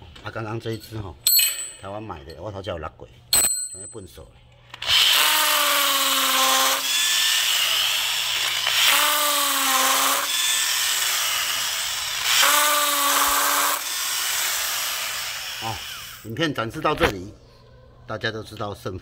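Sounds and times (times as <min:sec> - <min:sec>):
pitched drill whine: 0:04.8 - 0:16.2
drill boring into concrete: 0:04.8 - 0:16.3.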